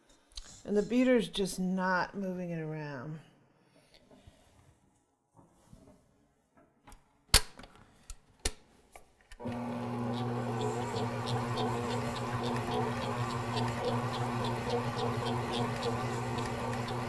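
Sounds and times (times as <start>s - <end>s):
mixer motor humming: 9.4s - 17.0s
stand mixer head clicking and clunking: 9.4s - 17.0s.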